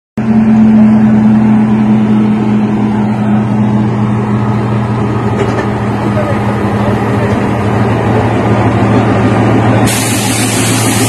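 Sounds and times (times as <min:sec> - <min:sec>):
diesel locomotive engine drone: 0:00.2 - 0:11.0.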